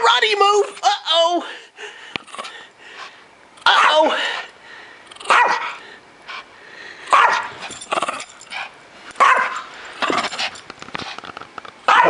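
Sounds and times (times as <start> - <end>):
small dog barking: 3.7 - 4.1, 5.2 - 5.8, 7.1 - 7.6, 9.2 - 10.2.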